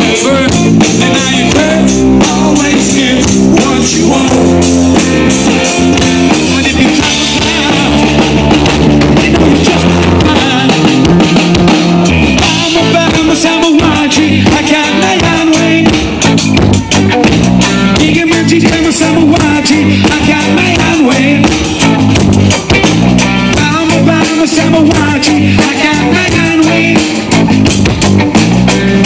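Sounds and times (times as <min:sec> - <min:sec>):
man singing into microphone: 0:00.0 - 0:04.8, 0:06.3 - 0:08.4, 0:09.0 - 0:11.1, 0:12.4 - 0:16.2, 0:17.8 - 0:21.6, 0:23.5 - 0:27.2
bass guitar: 0:00.0 - 0:29.0
drum kit: 0:00.0 - 0:29.0
electric guitar: 0:00.0 - 0:29.0.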